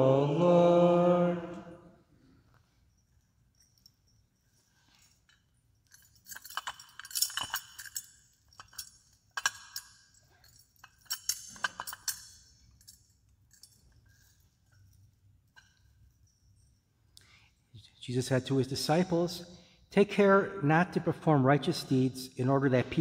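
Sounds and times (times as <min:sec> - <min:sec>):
thurible chains clinking: 0:02.1 - 0:20.1.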